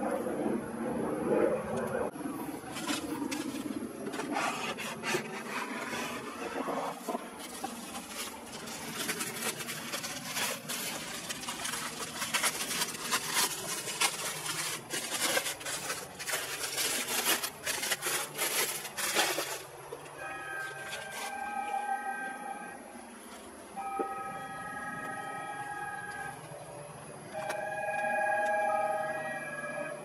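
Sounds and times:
bubble wrap crinkling: 2.6 - 22.5
steady multi-pitch tone: 20.1 - 30.0.

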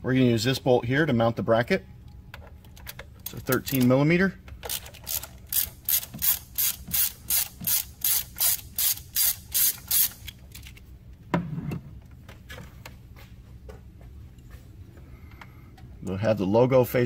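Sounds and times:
socket ratchet clicking: 4.5 - 10.7.

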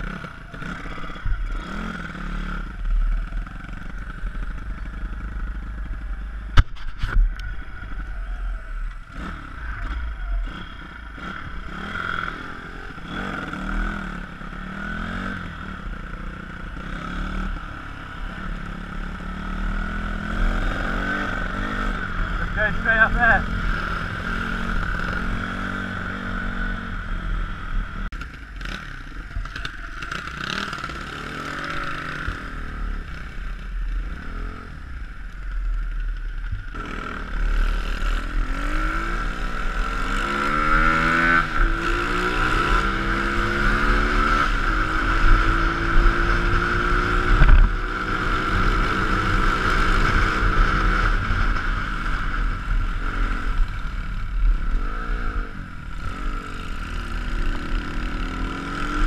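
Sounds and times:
motorbike engine accelerating: 0.0 - 59.0
wind rumble on microphone: 45.2 - 48.1.

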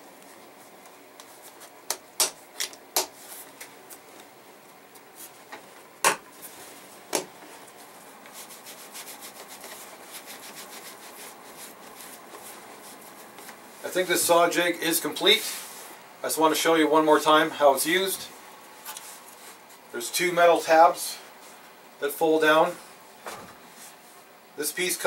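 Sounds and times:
leather rubbing and scraping: 7.8 - 14.0.

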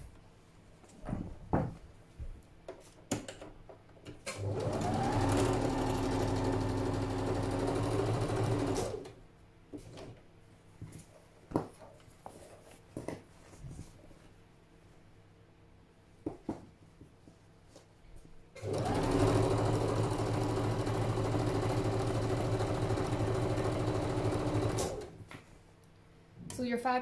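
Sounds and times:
sewing machine stitching: 4.2 - 9.2, 18.6 - 25.2.

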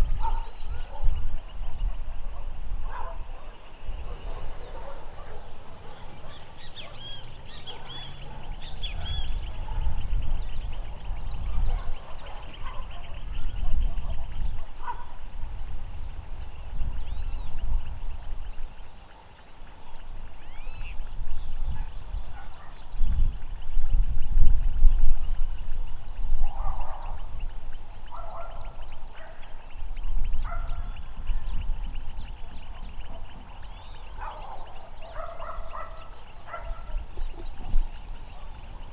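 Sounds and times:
chatter of small bird calls: 0.0 - 38.9
wind buffeting microphone: 0.0 - 38.9
birds calling high notes: 26.9 - 38.9.

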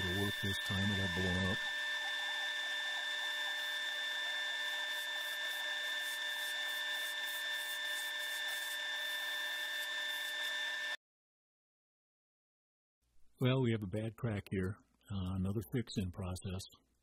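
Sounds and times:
wood lathe whining: 0.0 - 11.0
gouge scratching wood: 2.1 - 10.9.

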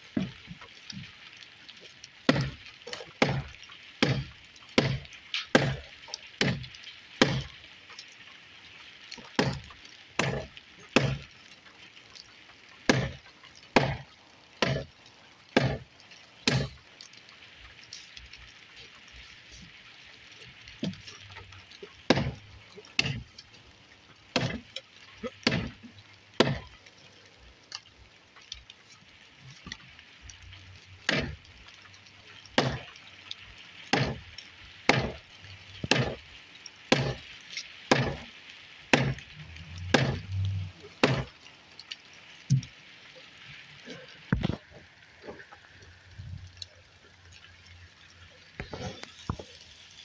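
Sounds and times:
axe chopping wooden post: 2.3 - 2.6, 3.2 - 7.5, 9.4 - 11.3, 12.9 - 13.2, 13.8 - 14.0, 14.6 - 14.9, 15.6 - 15.8, 16.4 - 16.8, 22.1 - 22.4, 23.0 - 23.3, 24.3 - 24.7, 25.4 - 25.8, 26.4 - 26.7, 31.1 - 31.4, 32.6 - 32.9, 33.9 - 34.2, 34.9 - 35.2, 35.8 - 36.2, 36.9 - 37.2, 37.9 - 38.3, 38.9 - 40.3, 41.0 - 41.3.

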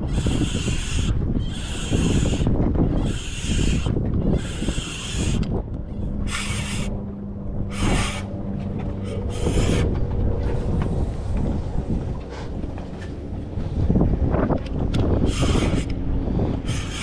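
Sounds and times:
wind buffeting microphone: 0.0 - 17.0
hissing swish: 7.7 - 9.9.

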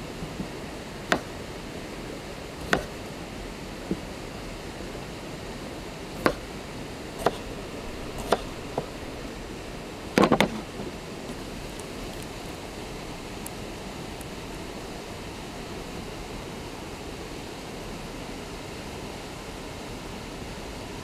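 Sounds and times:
steady hiss: 0.0 - 21.0
sharp knocks and clicks: 2.6 - 2.9, 7.2 - 9.2, 10.2 - 10.6.

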